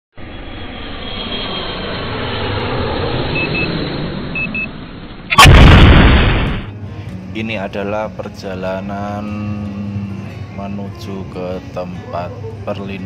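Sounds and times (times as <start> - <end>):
rushing noise: 0.2 - 6.8
short high beeps: 4.4 - 4.7
sudden loud hit: 5.2 - 6.7.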